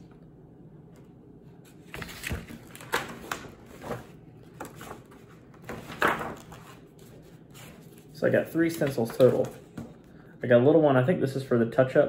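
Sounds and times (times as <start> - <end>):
paper rustling: 1.6 - 9.8.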